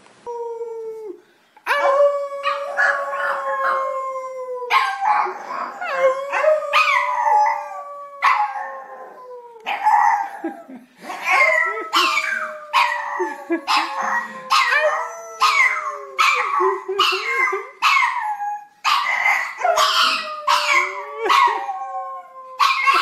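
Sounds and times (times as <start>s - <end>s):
dog howling: 1.7s - 10.3s, 18.1s - 23.0s.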